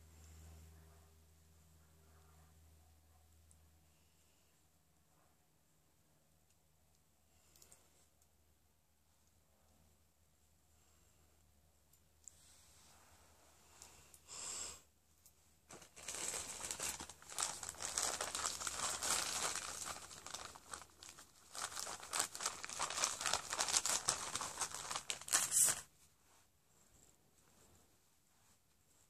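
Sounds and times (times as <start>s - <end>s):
plastic packet crinkling: 15.7s - 25.9s.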